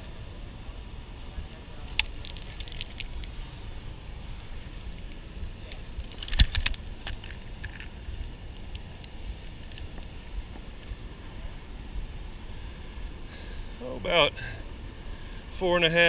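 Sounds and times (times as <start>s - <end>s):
metallic clinks and rattles: 1.4s - 3.4s, 5.6s - 8.0s.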